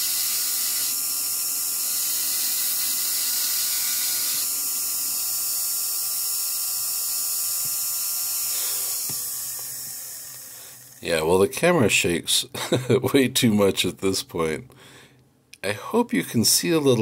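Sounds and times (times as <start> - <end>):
rotary tool whining on stone: 0.0 - 11.1.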